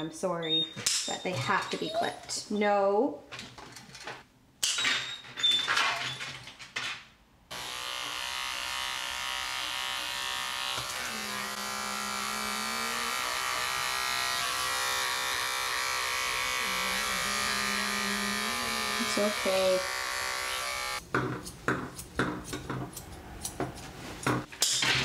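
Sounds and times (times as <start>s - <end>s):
electric grooming tool running: 7.5s - 21.0s.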